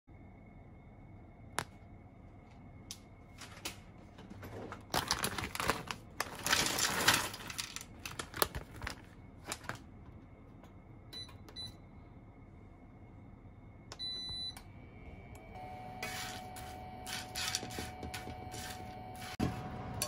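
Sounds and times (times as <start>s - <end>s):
plastic bag crinkling: 4.5s - 9.8s.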